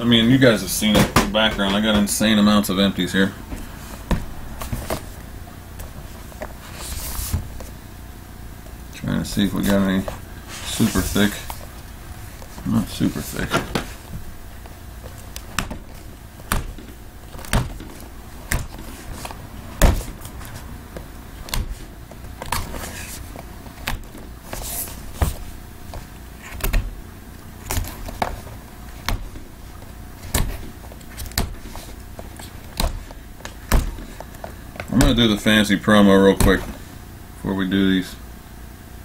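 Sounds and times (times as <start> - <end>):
cardboard rubbing: 3.5 - 7.8, 9.3 - 35.4.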